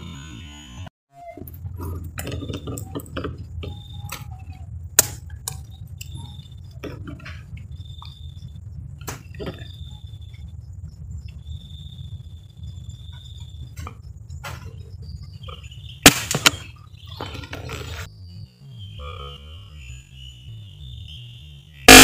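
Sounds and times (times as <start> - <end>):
low handling rumble: 0.0 - 20.5
small animal chirps: 2.5 - 4.8.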